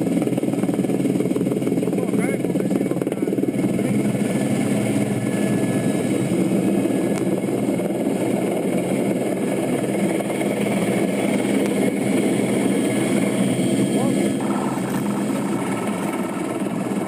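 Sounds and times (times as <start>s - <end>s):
helicopter engine and rotor drone: 0.0s - 17.0s.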